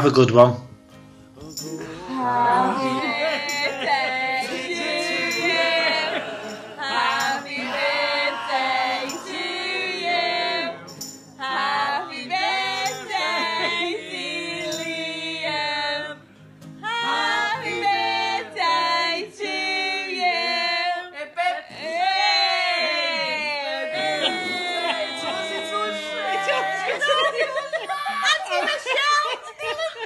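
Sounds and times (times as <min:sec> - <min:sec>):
backing music: 0:00.8 - 0:19.0
person singing: 0:01.4 - 0:16.2, 0:16.8 - 0:27.1.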